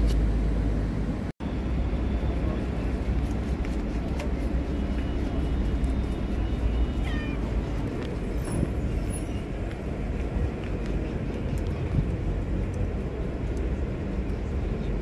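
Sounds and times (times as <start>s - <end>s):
cat meowing: 6.9s - 7.5s.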